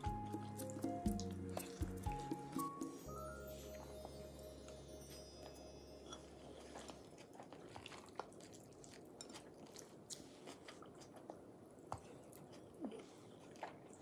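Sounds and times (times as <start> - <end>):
background music: 0.0 - 7.0
faint chewing: 6.1 - 14.0.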